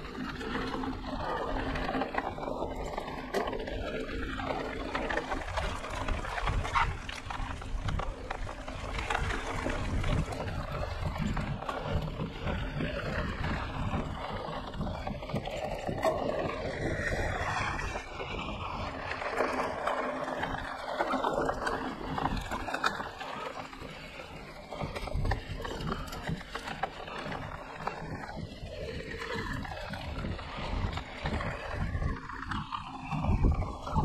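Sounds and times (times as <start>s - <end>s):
wind rushing over microphone: 4.4s - 23.2s, 24.3s - 34.0s.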